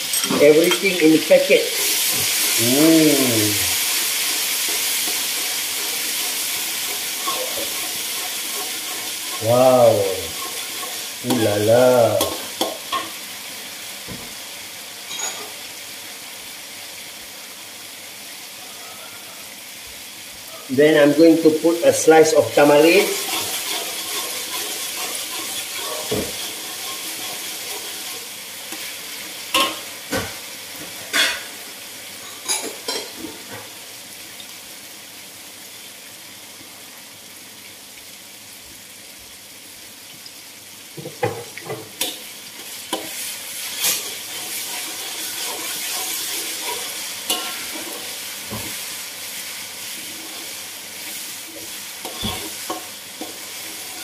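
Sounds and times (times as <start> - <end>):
paste sizzling in oil: 0.0 - 18.8, 19.4 - 54.0
metal spatula scraping wok: 3.8 - 13.2, 22.6 - 29.9, 42.0 - 48.9, 49.9 - 54.0.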